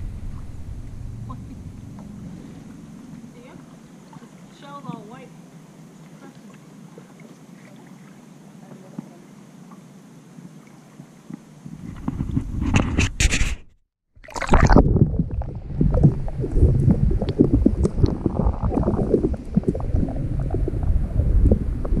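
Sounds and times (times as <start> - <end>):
water splashing over microphone: 0.0 - 5.2, 14.2 - 22.0
underwater low rumble: 0.0 - 7.7, 14.2 - 22.0.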